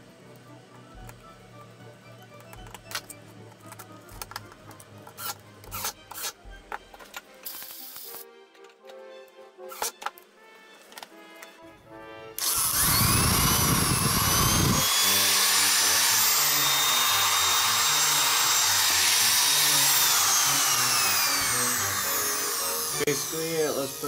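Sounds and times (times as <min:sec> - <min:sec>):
electric clipper motor whining: 0:12.4 - 0:24.0.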